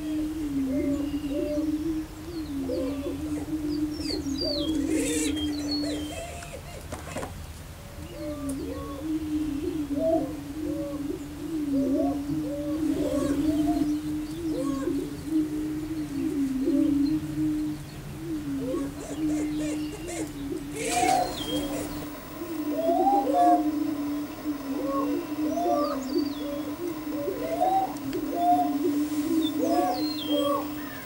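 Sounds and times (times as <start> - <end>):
prairie-chickens booming: 18.4 - 31.0
higher whooping calls: 19.6 - 31.0
harsh call burst: 20.7 - 31.0.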